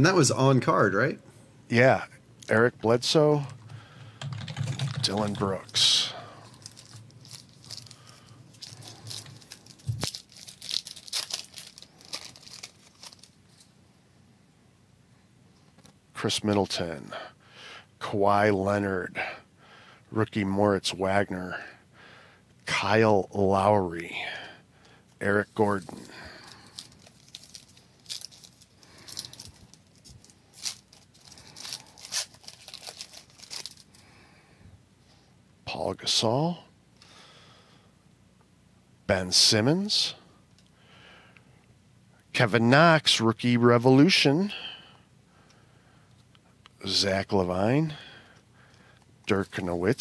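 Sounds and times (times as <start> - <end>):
foil wrapper tearing and crinkling: 6.4 - 13.6, 25.7 - 34.0.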